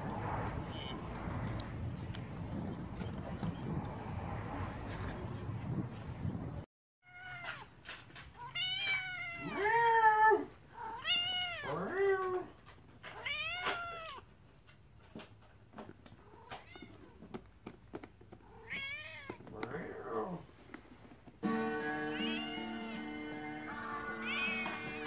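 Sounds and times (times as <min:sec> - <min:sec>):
cat meowing: 0:00.6 - 0:01.2, 0:07.0 - 0:07.7, 0:08.4 - 0:14.3, 0:18.5 - 0:20.3, 0:22.0 - 0:23.0, 0:24.0 - 0:25.0.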